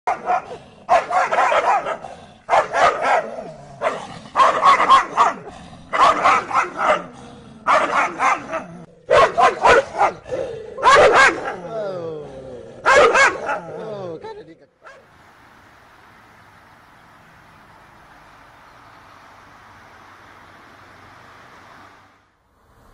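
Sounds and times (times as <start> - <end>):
dogs barking furiously: 0.1 - 11.8, 12.8 - 14.0, 14.8 - 15.1.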